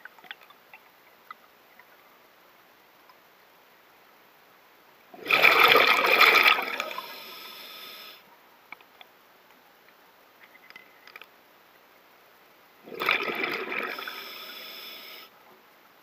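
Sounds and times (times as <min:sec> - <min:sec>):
underwater exhaled breath bubbles: 0:05.2 - 0:07.5, 0:12.9 - 0:15.2
faint clicks: 0:08.7 - 0:11.4.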